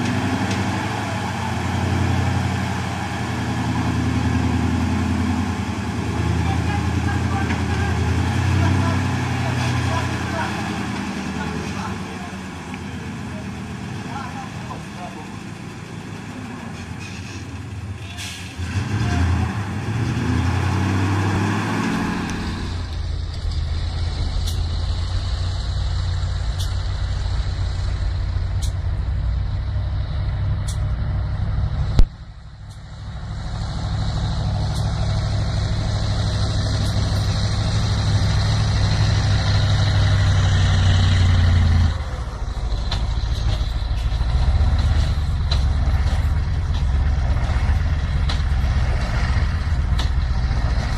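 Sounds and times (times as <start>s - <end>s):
truck diesel engine running hard: 0.0s - 50.9s.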